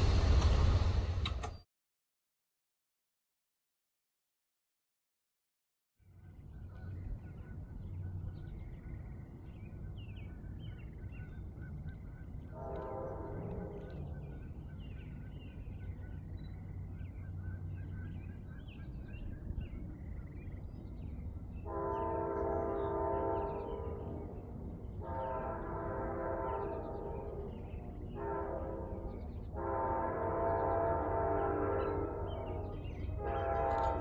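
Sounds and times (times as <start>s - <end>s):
train low rumble: 0.0s - 1.6s, 6.0s - 34.0s
locomotive air horn blast: 12.6s - 14.1s, 21.6s - 24.2s, 25.0s - 27.5s, 28.1s - 34.0s.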